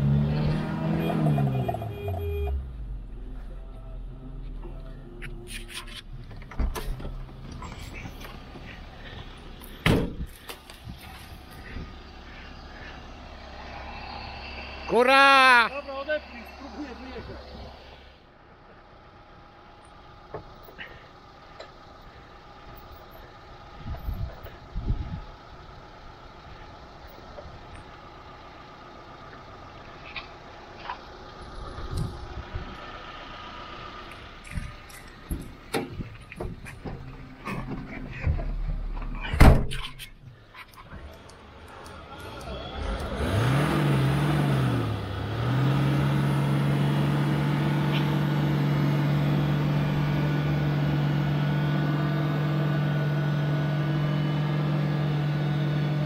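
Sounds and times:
off-road engine revving and idling: 0:00.0 - 0:56.0
low rumbles: 0:02.6 - 0:45.6.

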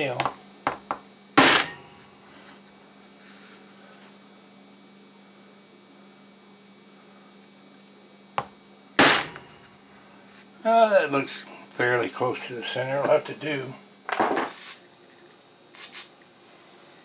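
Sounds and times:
electrical hum: 0:00.0 - 0:17.0
hammer striking nail on metal: 0:01.4 - 0:01.9, 0:09.0 - 0:09.7.

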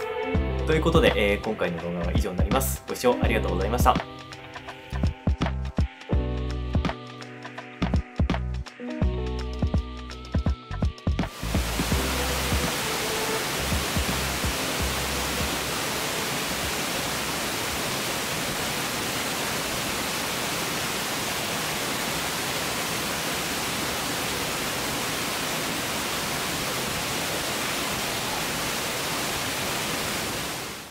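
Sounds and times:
waterfalls roaring: 0:11.3 - 0:30.9.

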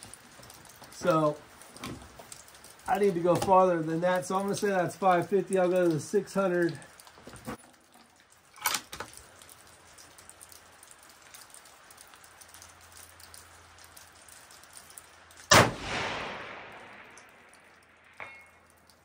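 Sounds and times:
rifle shot echoing: 0:15.5 - 0:18.3.

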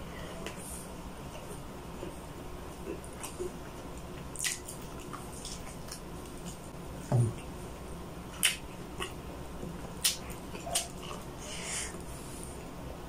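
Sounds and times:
wet chewing: 0:01.3 - 0:06.7, 0:09.8 - 0:11.4.

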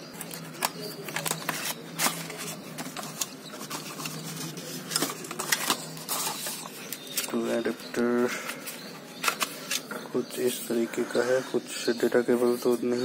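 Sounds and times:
paper scraping: 0:00.1 - 0:07.4.

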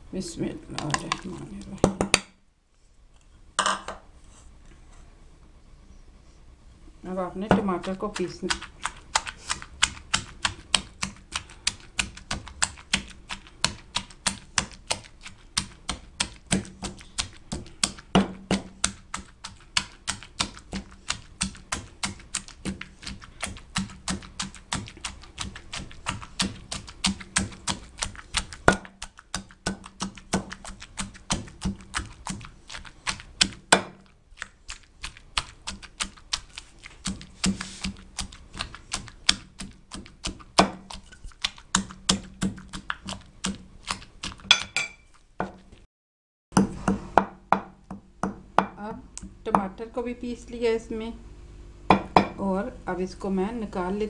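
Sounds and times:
pestle pounding in stone mortar: 0:07.4 - 0:34.1, 0:35.1 - 0:45.7, 0:46.5 - 0:48.8, 0:51.9 - 0:52.4.

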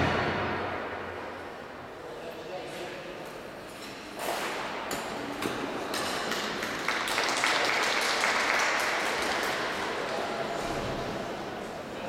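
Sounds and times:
audience applauding: 0:06.3 - 0:10.0.

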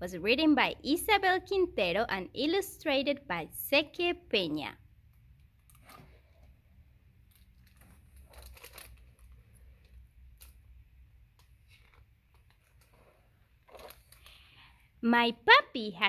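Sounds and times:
book pages rustling: 0:07.3 - 0:09.6, 0:11.4 - 0:14.4.

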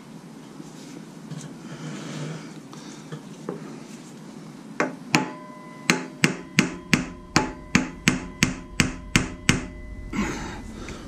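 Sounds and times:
hammer blows on metal: 0:05.2 - 0:11.0.

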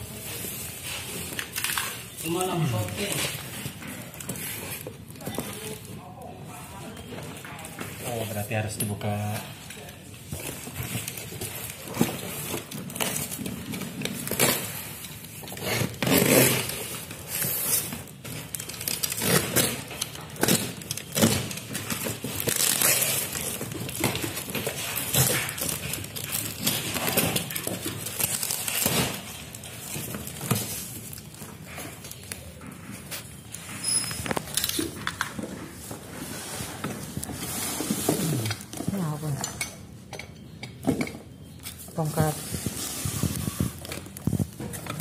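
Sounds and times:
cardboard tearing and crackling: 0:10.4 - 0:33.4
blade cutting packing tape: 0:14.2 - 0:23.7.

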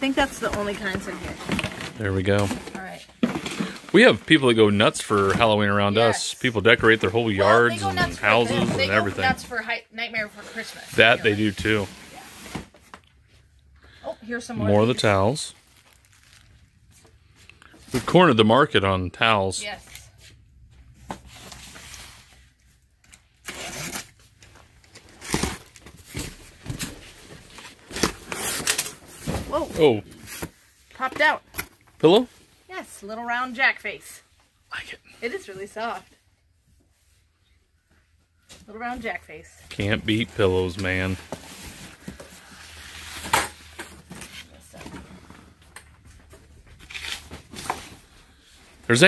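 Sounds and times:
cardboard boxes rustling: 0:00.0 - 0:13.0, 0:24.0 - 0:31.4, 0:39.8 - 0:49.0
box cutter slitting packing tape: 0:23.4 - 0:24.2
tape and cardboard crackling: 0:45.7 - 0:48.1.

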